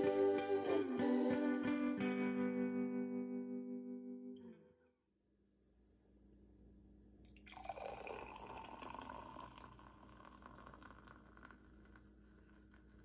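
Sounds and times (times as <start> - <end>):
faint liquid dripping: 7.3 - 13.0.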